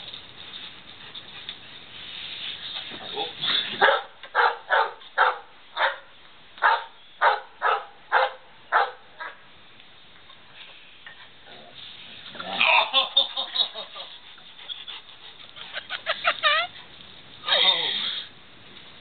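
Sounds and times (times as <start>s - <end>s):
dog barking: 3.8s - 9.4s.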